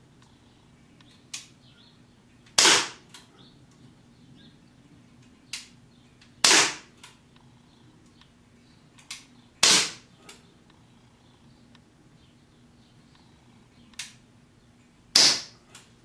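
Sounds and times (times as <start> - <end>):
air pistol shots popping: 2.6 - 3.0, 6.4 - 6.9, 9.1 - 10.1, 15.1 - 15.6.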